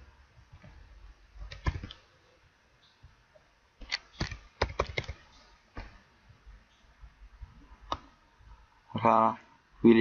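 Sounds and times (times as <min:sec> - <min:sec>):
computer keyboard keystrokes: 0:01.5 - 0:02.0, 0:03.8 - 0:05.2.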